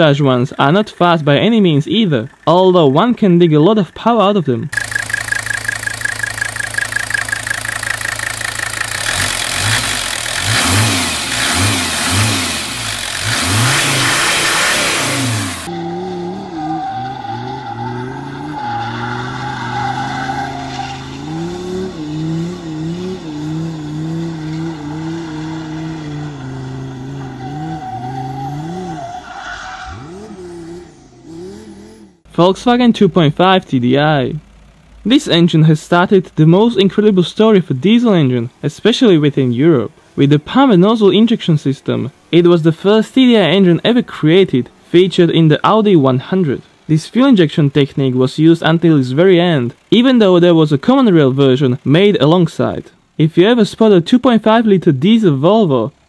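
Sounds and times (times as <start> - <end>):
diesel engine idling and revving: 0.0 - 38.6, 43.4 - 53.2
engine revving under load: 4.7 - 32.3.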